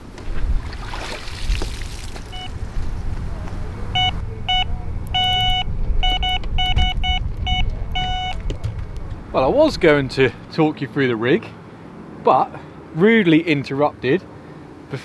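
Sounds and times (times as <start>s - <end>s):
low wind rumble on microphone: 0.0s - 10.6s
electronic bite alarm beeping: 4.0s - 8.5s.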